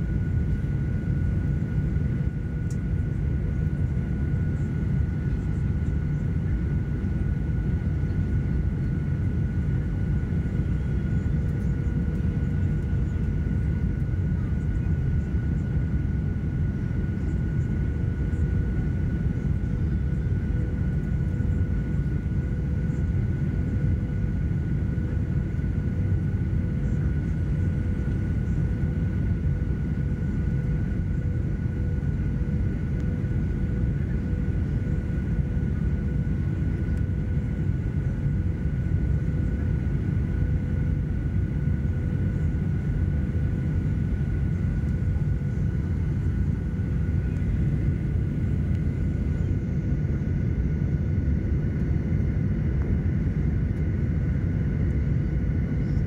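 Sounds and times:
jet engine roar and airflow: 0.0s - 56.0s
steady high whines: 32.5s - 56.0s.

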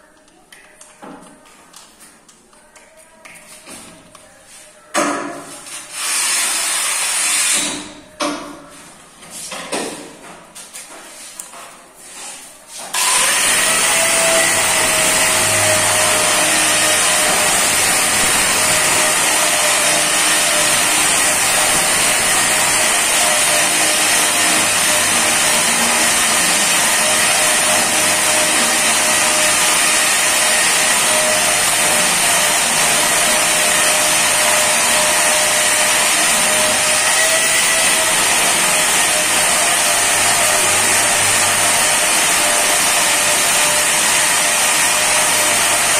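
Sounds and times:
angle grinder whining: 12.9s - 45.9s.

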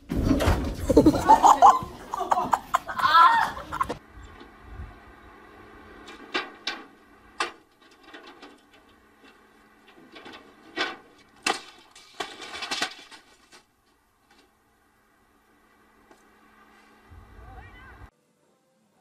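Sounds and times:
refrigerator knocking and crashing: 0.0s - 1.2s.

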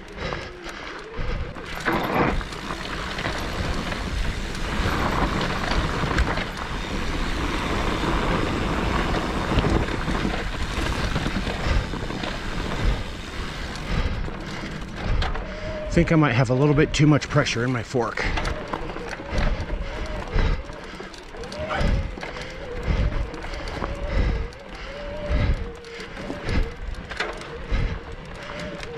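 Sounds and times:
bike knocking and rattling: 0.0s - 28.9s
tyre and wind rush: 1.3s - 20.6s.

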